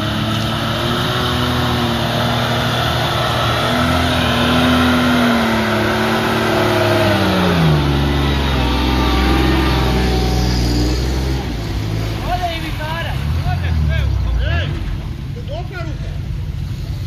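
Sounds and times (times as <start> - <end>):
truck engine running under load: 0.0 - 11.8
tyres churning through mud and water: 0.0 - 17.0.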